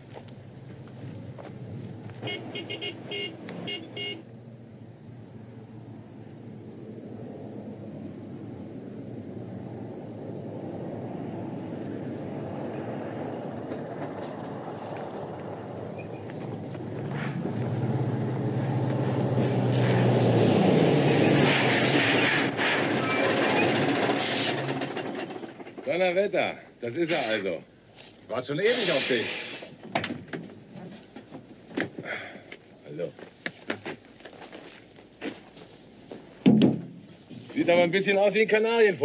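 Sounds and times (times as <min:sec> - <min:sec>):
truck engine approaching: 0:00.0 - 0:26.7
vehicle horn short toots: 0:02.2 - 0:04.2.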